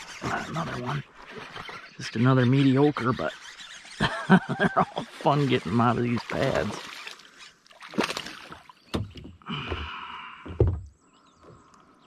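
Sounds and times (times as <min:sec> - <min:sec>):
fish splashing in water: 0:05.1 - 0:09.2
knocks against kayak: 0:08.9 - 0:09.9, 0:10.5 - 0:10.9.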